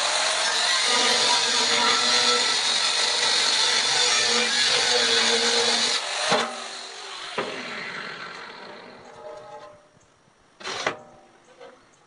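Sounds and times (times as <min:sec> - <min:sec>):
angle grinder cutting steel: 0:00.0 - 0:09.6.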